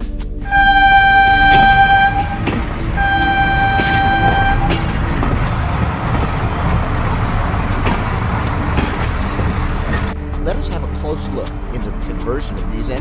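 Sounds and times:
steam locomotive whistle: 0.4s - 10.1s
train rumble and clatter: 0.4s - 13.0s.

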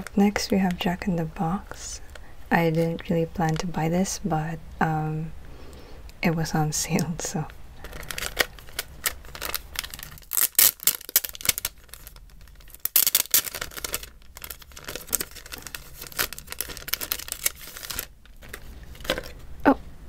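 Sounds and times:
plastic sleeve crinkling: 6.9s - 19.5s.

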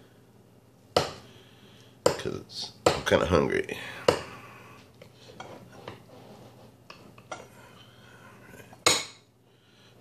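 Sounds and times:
cutlery scraping against dish: 5.3s - 9.1s.

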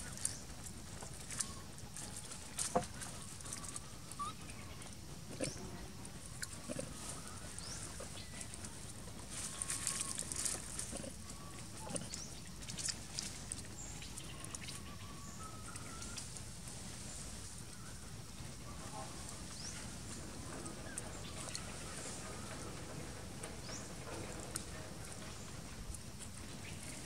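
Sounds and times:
steady outdoor hiss: 0.0s - 27.0s
monkeys grunting and squeaking: 3.4s - 5.8s, 10.2s - 12.3s.

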